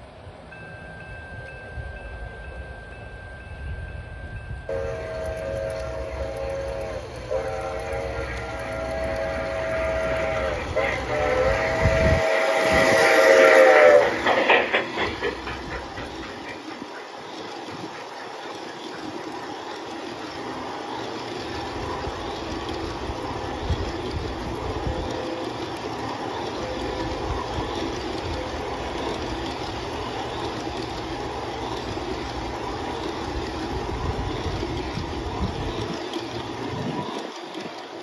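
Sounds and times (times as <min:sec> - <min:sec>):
model train wheels clattering: 0:00.6 - 0:38.0.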